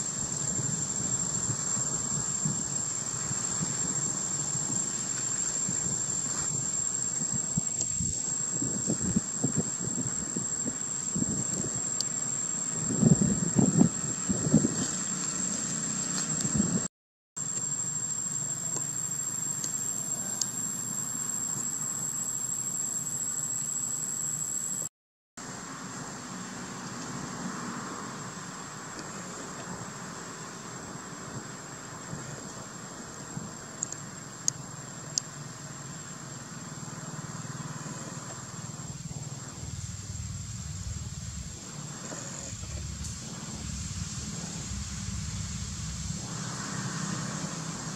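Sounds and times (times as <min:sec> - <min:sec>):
high-pitched insect drone: 0:00.0 - 0:24.9, 0:25.5 - 0:47.9
thin high whine: 0:27.9 - 0:47.9
low even hum: 0:35.4 - 0:47.9.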